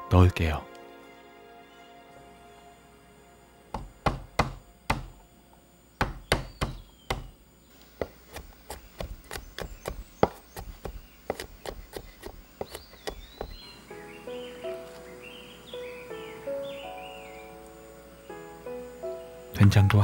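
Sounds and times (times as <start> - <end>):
cleaver chopping on wooden board: 3.7 - 5.2, 6.0 - 7.4, 8.0 - 13.6.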